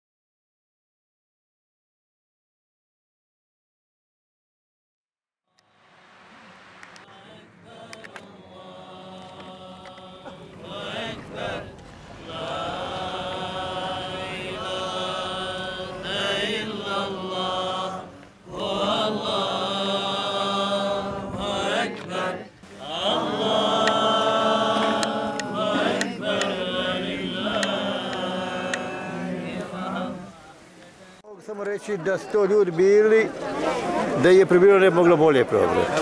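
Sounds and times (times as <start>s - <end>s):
solo voice chanting: 7.0s - 31.2s.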